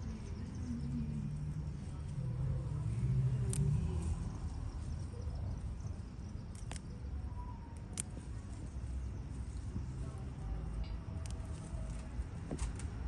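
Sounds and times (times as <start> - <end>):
low rumble: 0.0 - 7.7
herb stems snapping: 3.3 - 4.0, 6.5 - 7.0, 7.7 - 8.2, 10.8 - 13.0.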